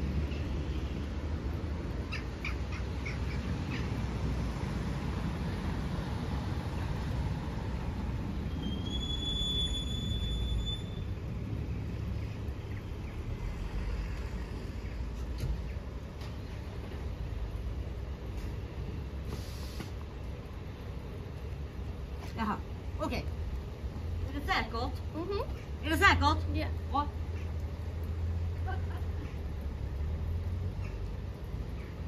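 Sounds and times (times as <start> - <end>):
minibus driving up: 3.0 - 20.0
high steady squeal: 8.4 - 11.3.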